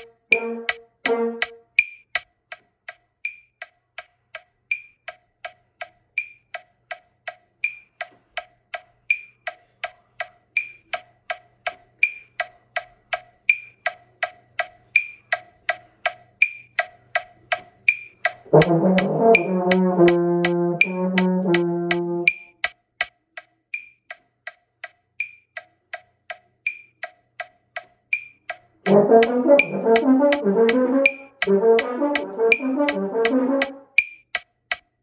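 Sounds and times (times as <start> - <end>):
metronome clicking: 0.0 - 35.0.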